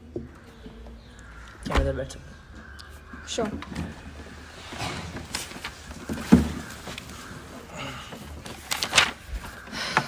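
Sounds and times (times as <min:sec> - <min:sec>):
rustling: 0:03.1 - 0:10.0.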